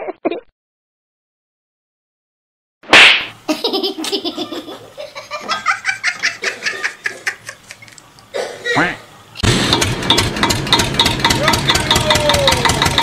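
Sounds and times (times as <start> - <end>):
person laughing: 3.5 - 7.9.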